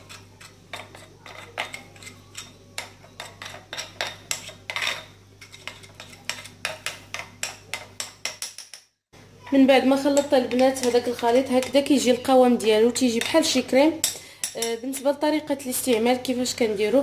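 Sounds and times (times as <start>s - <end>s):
spoon clicking and scraping dish: 0.0s - 8.9s, 10.1s - 11.9s, 13.1s - 15.1s.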